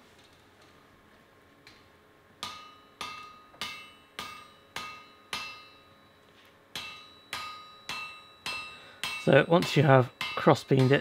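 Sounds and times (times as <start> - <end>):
hammer striking hot metal on anvil: 2.4 - 11.0.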